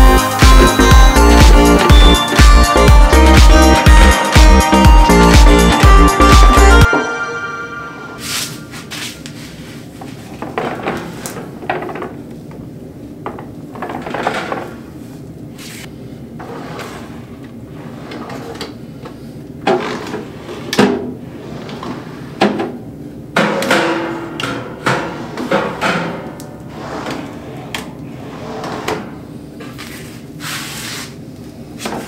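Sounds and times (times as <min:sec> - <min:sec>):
drawers sliding on metal slides: 0:16.4 - 0:18.8, 0:19.7 - 0:22.6, 0:24.9 - 0:31.1.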